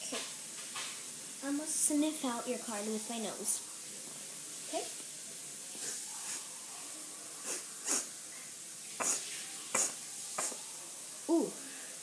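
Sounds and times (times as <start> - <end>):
background hiss: 0.0 - 12.0
child sniffing: 7.4 - 8.1, 9.0 - 10.6.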